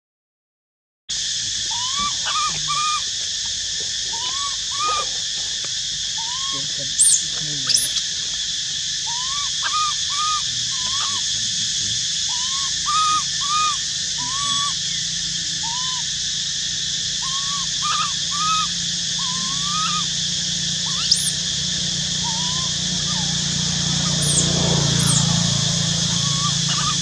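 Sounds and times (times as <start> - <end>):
infant monkey cooing: 1.6 - 3.2, 3.9 - 27.0
high-pitched drone: 10.2 - 27.0.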